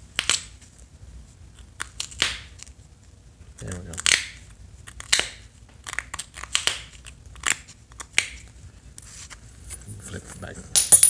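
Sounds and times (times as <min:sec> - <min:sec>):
stone flakes clicking and crackling: 0:03.6 - 0:08.3.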